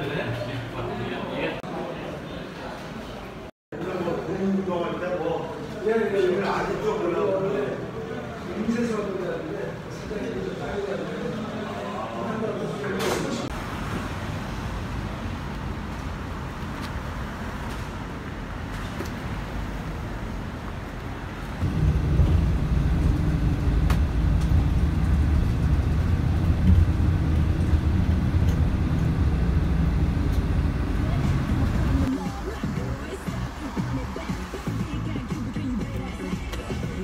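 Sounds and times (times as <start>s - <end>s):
road traffic rumble: 13.4s - 37.0s.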